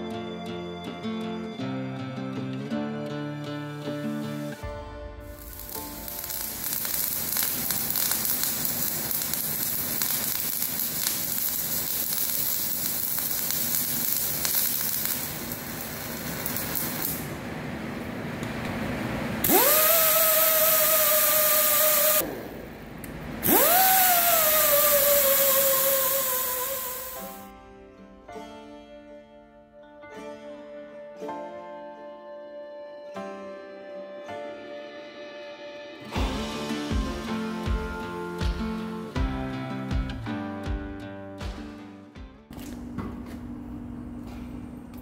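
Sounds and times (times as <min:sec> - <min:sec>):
welding arc crackling and hissing: 0:05.3 - 0:17.4, 0:19.4 - 0:27.5
angle grinder whining: 0:19.4 - 0:27.4.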